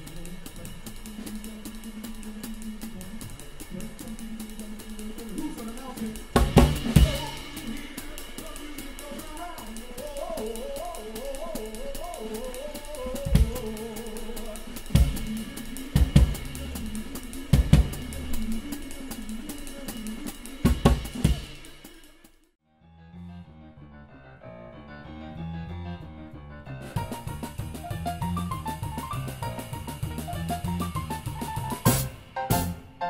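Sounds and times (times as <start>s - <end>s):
band melody: 0.0s - 21.9s, 23.1s - 33.0s
cymbal strokes: 0.0s - 22.4s
drum kit playing: 0.0s - 22.5s, 26.8s - 33.0s.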